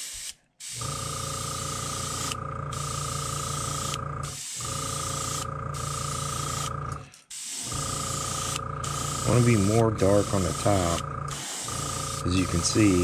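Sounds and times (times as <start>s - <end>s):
airbrush spraying hiss: 0.0s - 0.8s, 1.7s - 4.7s, 7.3s - 13.0s.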